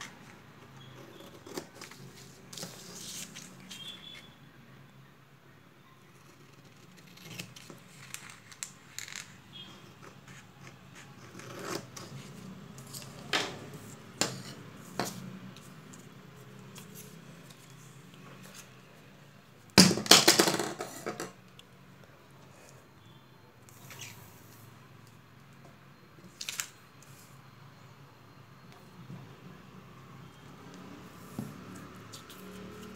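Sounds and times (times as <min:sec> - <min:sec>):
paper rustling on a table: 0:01.6 - 0:04.2.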